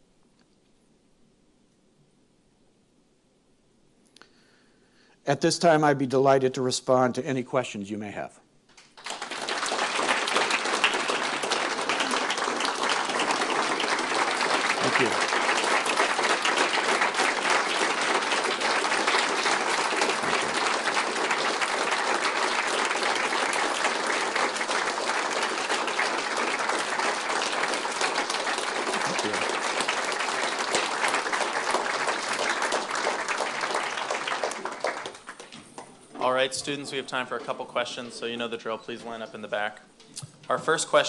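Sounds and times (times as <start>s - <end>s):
audience applauding: 8.8s - 36.9s.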